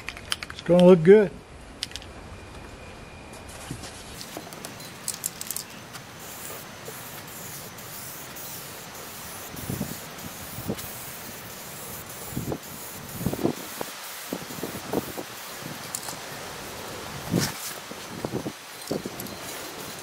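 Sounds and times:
aerosol spray can hissing: 5.0s - 20.0s.

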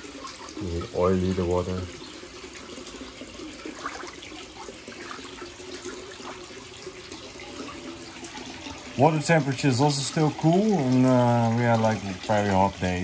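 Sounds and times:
trickling water: 0.0s - 13.0s.

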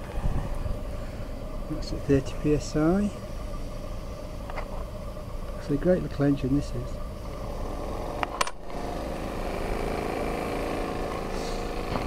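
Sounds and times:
steam engine running: 0.0s - 12.0s
sharp metallic clicks: 8.2s - 8.7s.

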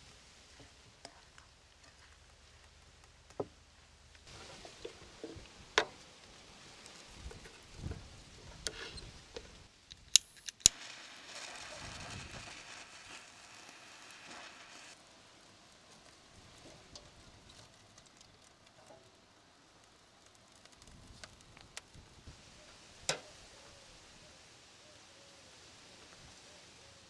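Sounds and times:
lighter clicks: 9.9s - 10.8s
flame hissing: 10.0s - 15.0s.

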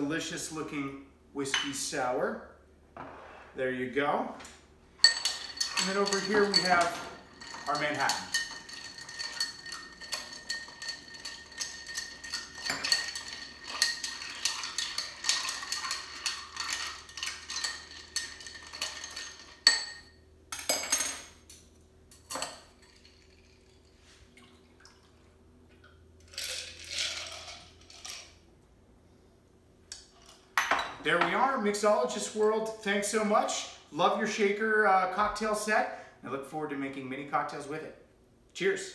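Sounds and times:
strainer clinking on glass: 5.0s - 20.0s
bar spoon stirring ice in glass: 5.0s - 20.1s, 26.3s - 28.3s
drink pouring into glass: 22.8s - 25.2s, 26.2s - 28.2s.

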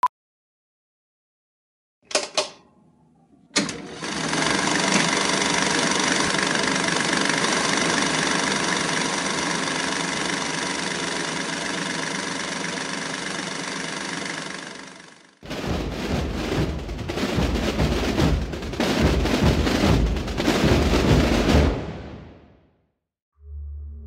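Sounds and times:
loud mechanical drone: 4.4s - 15.3s
sharp hit: 15.4s - 22.6s.

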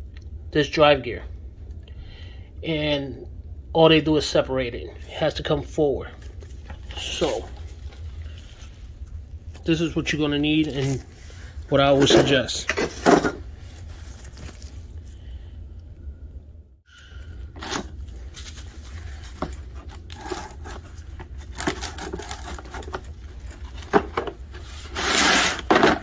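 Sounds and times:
steady low hum: 0.0s - 26.0s
paper towel scraping rustle: 13.0s - 15.0s.

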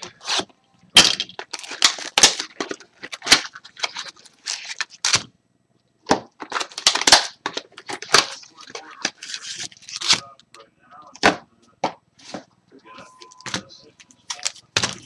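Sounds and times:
packaging tearing and crinkling: 0.0s - 5.3s, 6.4s - 10.2s.

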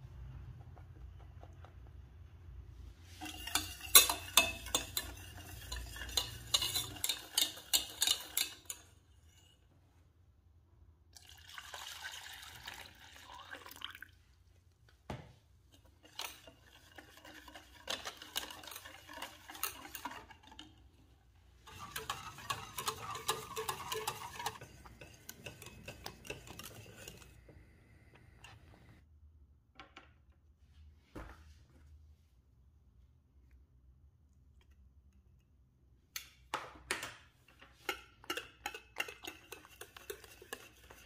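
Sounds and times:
utensil stirring in a bowl: 2.8s - 9.7s, 15.6s - 29.0s, 37.4s - 41.0s
metal clinking against dish: 3.2s - 8.9s.

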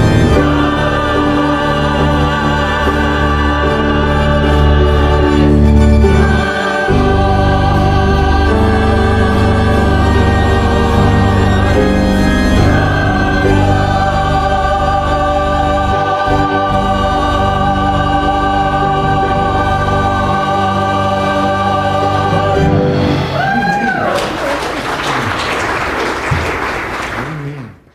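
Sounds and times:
choir singing with accompaniment: 0.0s - 24.0s
audience applauding: 23.3s - 27.9s.

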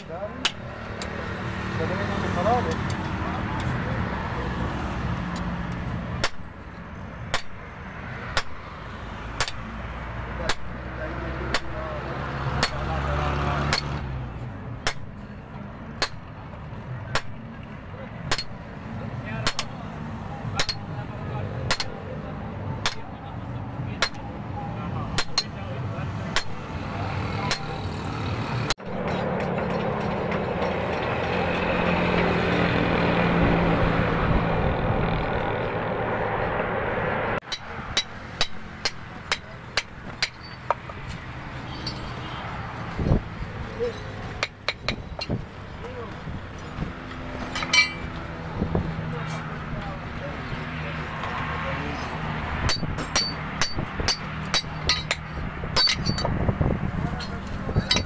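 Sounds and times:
hammer striking hot steel on anvil: 6.2s - 6.7s, 7.3s - 7.7s, 8.3s - 8.7s, 9.4s - 9.8s, 10.4s - 11.9s, 12.6s - 12.9s, 13.6s - 14.0s, 14.8s - 15.2s, 16.0s - 16.4s, 17.1s - 17.5s, 18.3s - 18.6s, 19.4s - 19.8s, 20.5s - 20.9s, 21.7s - 22.0s, 22.8s - 23.1s, 24.0s - 24.3s, 25.1s - 25.6s, 26.4s - 26.7s, 27.4s - 27.8s, 37.4s - 40.9s, 52.6s - 56.3s, 57.2s - 58.0s.

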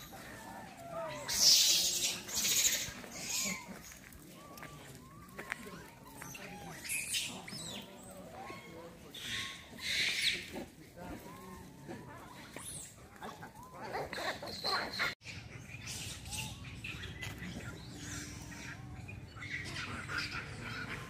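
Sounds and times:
outdoor background noise: 0.0s - 21.0s.

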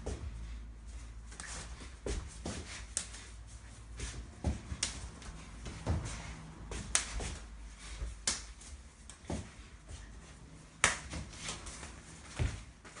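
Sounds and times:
hands and forearms slapping: 4.1s - 6.1s, 6.7s - 9.6s, 10.7s - 12.5s.

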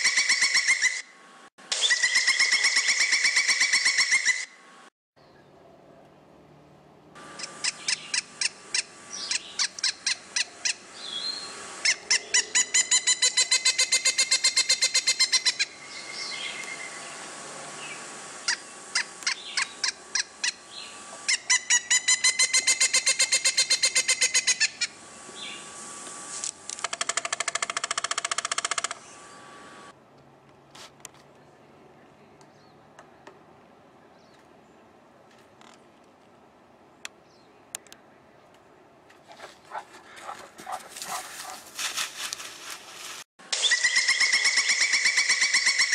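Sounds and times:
woodpecker calling: 0.0s - 1.1s, 1.7s - 4.6s, 7.2s - 17.1s, 18.4s - 25.6s, 26.8s - 29.2s, 43.6s - 45.9s
woodpecker rattling run: 26.8s - 29.0s, 39.2s - 43.2s.

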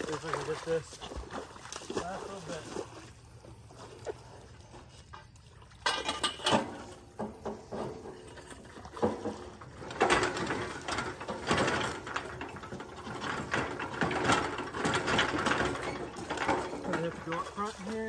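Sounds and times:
metal grinding and scraping: 5.0s - 18.0s.

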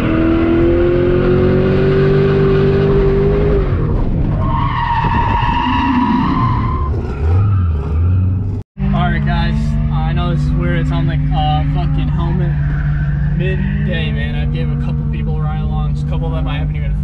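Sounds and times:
car engine revving high: 0.0s - 4.0s, 8.8s - 17.0s.

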